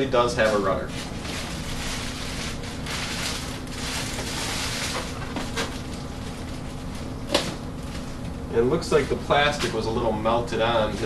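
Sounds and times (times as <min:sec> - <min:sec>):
plastic bag rustling and crinkling: 0:00.4 - 0:08.2.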